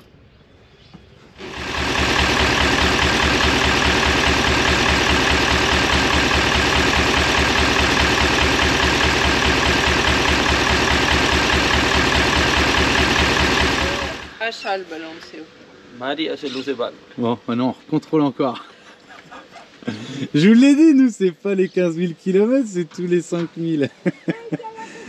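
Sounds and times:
diesel truck engine idling: 0:01.4 - 0:14.4.

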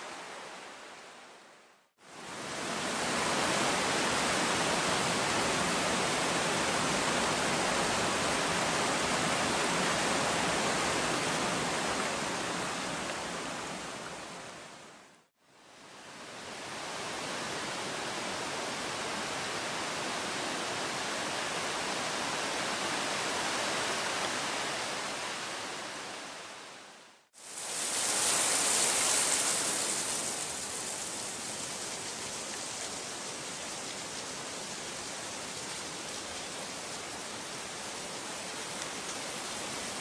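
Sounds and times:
river rushing over rapids: 0:00.0 - 0:40.0.

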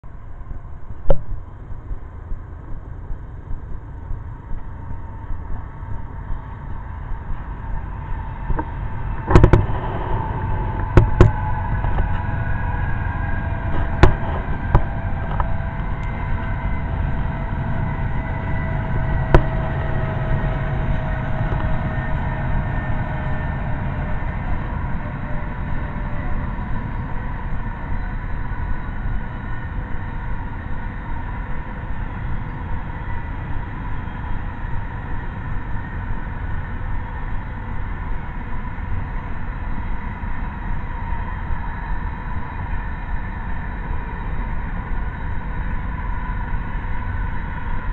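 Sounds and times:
freight train rumbling: 0:00.0 - 0:47.9
train whine: 0:00.0 - 0:47.9
sharp knocks: 0:08.5 - 0:12.2, 0:13.7 - 0:15.5.

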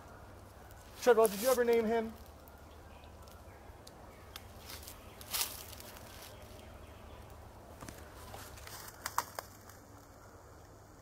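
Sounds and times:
twigs snapping: 0:00.7 - 0:06.4, 0:07.2 - 0:10.1
footsteps on dry leaves: 0:00.8 - 0:02.3, 0:04.5 - 0:06.7, 0:07.9 - 0:09.8.

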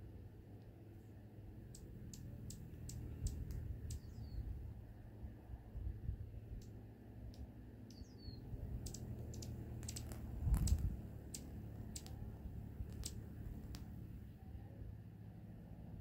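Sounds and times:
hummingbird chicks chipping: 0:01.3 - 0:04.7, 0:06.4 - 0:14.3
low rumble: 0:08.1 - 0:15.0.

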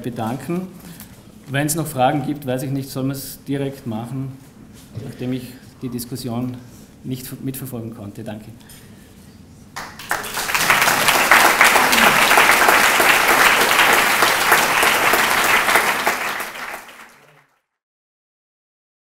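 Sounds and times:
audience applauding: 0:09.8 - 0:17.6.

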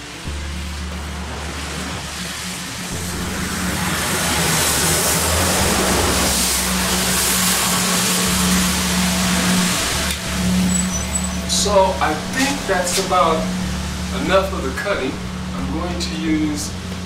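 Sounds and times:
steady low hum: 0:00.0 - 0:17.0
street sweeper rushing and hissing: 0:00.0 - 0:17.0.

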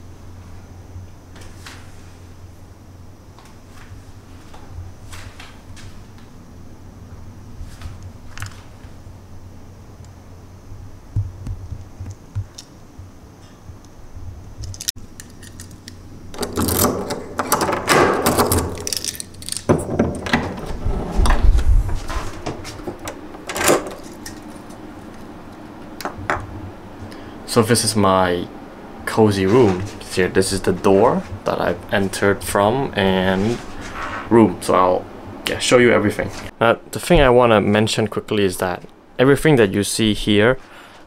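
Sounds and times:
keys jangling against door handle: 0:16.4 - 0:20.4, 0:23.0 - 0:24.6
door lock clicking: 0:23.0 - 0:24.4.

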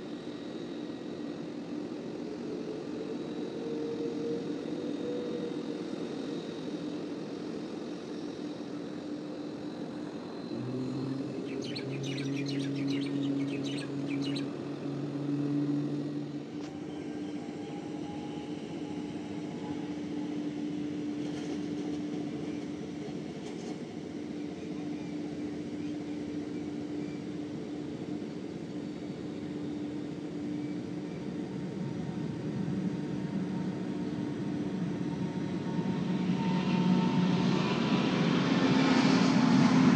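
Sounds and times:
jet engines humming: 0:00.0 - 0:39.9
birds chirping: 0:11.2 - 0:14.5.

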